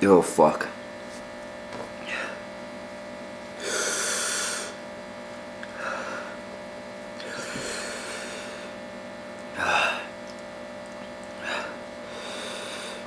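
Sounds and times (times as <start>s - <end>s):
faint electrical hum: 0.0s - 13.0s
man breathing hard: 2.0s - 2.5s, 3.6s - 4.8s, 5.6s - 6.4s, 7.2s - 8.8s, 9.5s - 10.2s, 11.4s - 13.0s.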